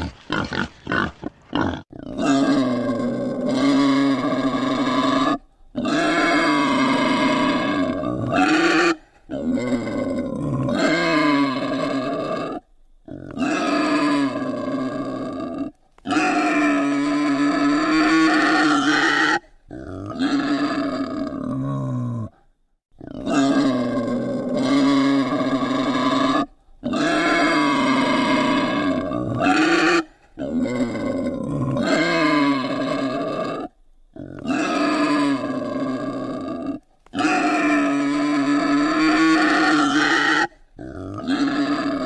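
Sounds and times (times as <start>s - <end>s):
wild boar calling: 0.0s - 22.4s, 23.0s - 42.0s.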